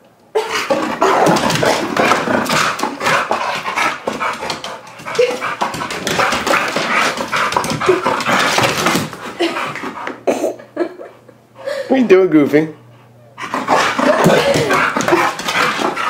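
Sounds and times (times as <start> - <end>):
dog making excited play noises: 0.4 - 10.2, 13.4 - 16.0.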